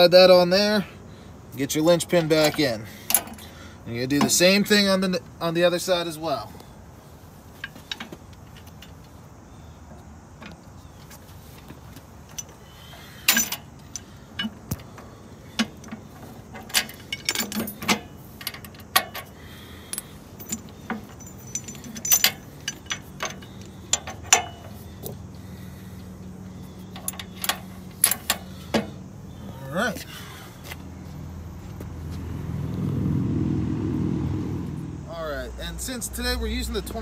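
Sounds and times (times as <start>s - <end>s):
metal chains clinking and rattling: 12.2s - 15.0s, 15.6s - 25.2s, 26.7s - 29.0s.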